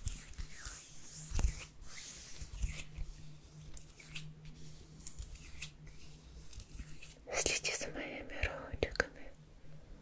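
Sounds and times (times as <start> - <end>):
rustling and rubbing on microphone: 0.0 - 7.8
steady low hum: 0.0 - 10.0.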